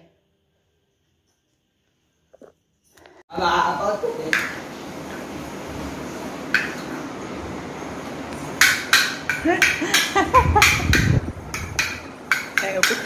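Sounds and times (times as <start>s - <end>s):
kitchen utensils clinking: 11.5s - 13.0s.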